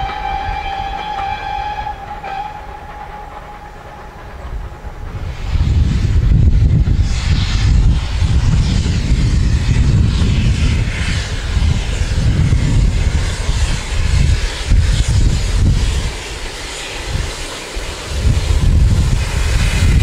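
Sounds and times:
distant steam locomotive rumble: 0.0 - 20.0
wind buffeting microphone: 4.0 - 20.0.

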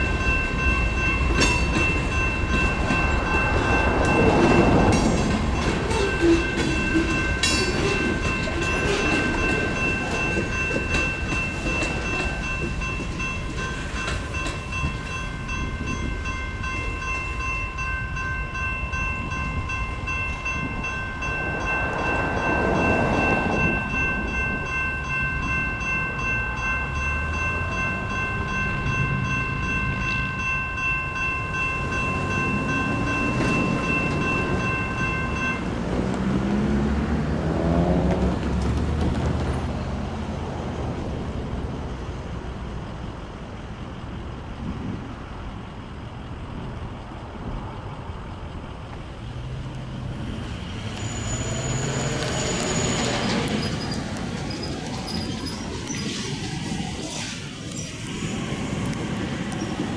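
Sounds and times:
train wheels clattering over rails: 0.0 - 17.3, 31.8 - 40.8, 48.5 - 59.9
crossing signal bell ringing: 0.0 - 36.6, 49.5 - 56.8
road vehicles moving: 0.0 - 59.9.

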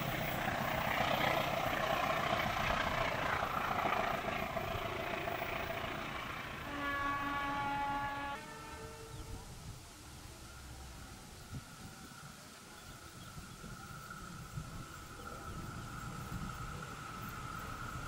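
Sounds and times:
train rumbling on rails: 0.0 - 18.0
train horn: 6.6 - 9.6.

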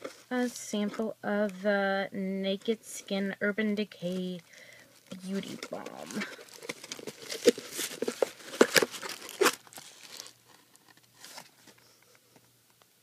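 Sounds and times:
faint paper rustles: 5.0 - 12.4
paper tearing and crinkling: 5.1 - 10.5.

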